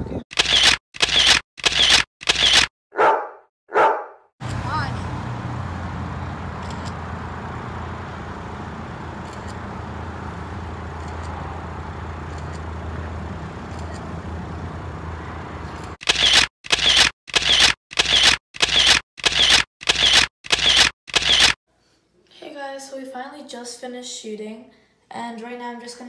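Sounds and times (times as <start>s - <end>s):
camera shutter clicks: 0.3s - 2.7s, 16.0s - 21.6s.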